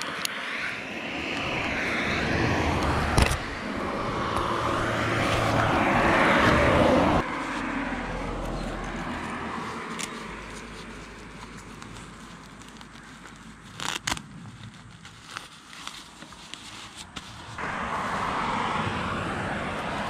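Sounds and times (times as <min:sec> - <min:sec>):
vehicle passing: 0:00.0 - 0:12.2, 0:17.5 - 0:20.0.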